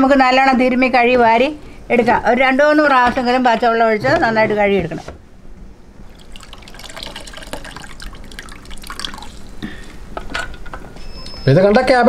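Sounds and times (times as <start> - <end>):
water dripping into steel basin: 6.1 - 9.6.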